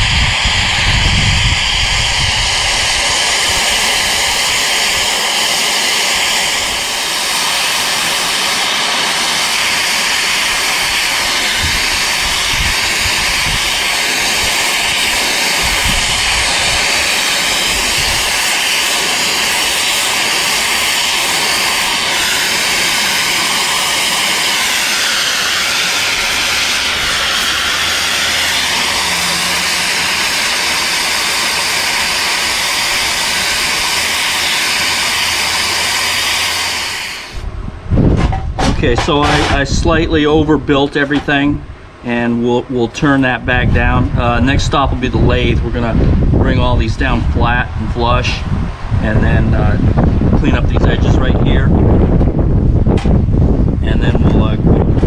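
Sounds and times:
plasma torch hissing: 0.0s - 37.5s.

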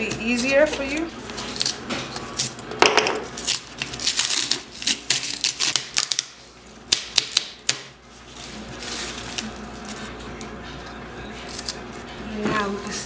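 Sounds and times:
cardboard tearing: 3.3s - 6.3s.

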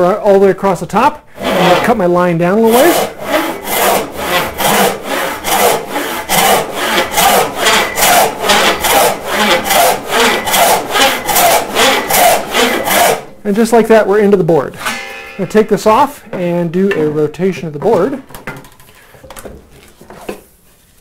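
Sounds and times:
saw cutting wood: 1.4s - 13.3s, 14.8s - 16.6s.

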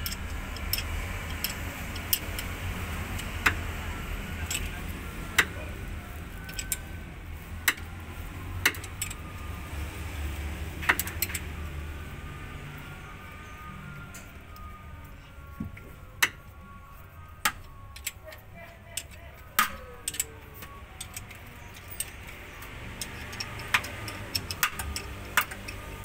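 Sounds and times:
wrench metal clicks: 0.0s - 2.5s, 19.0s - 20.3s, 21.0s - 26.0s.

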